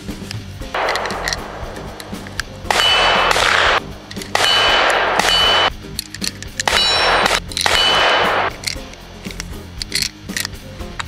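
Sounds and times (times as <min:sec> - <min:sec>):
small clicks: 0:00.3 - 0:02.6
cartridges clinking together: 0:00.8 - 0:11.0.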